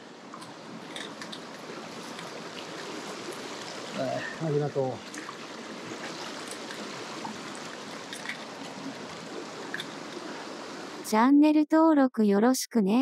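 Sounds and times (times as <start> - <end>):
stream flowing: 0.0 - 11.3
small splashes and drips: 0.4 - 10.8.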